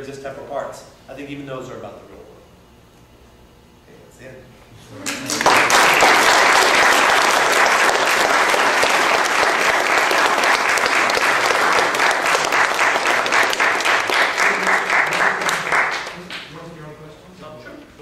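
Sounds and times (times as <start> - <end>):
audience applauding: 5.0 - 16.5.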